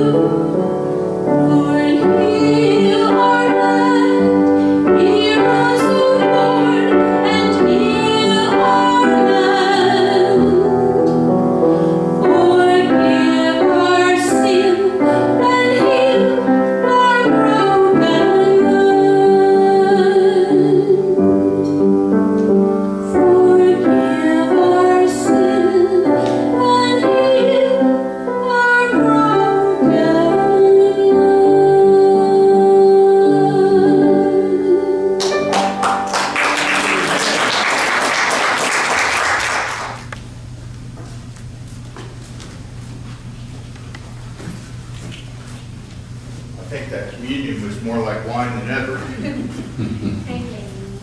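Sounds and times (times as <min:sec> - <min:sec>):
woman singing a hymn: 0:00.0 - 0:11.4, 0:12.2 - 0:21.7, 0:23.0 - 0:35.7
piano accompaniment: 0:00.0 - 0:40.2
congregation applauding: 0:35.2 - 0:40.1.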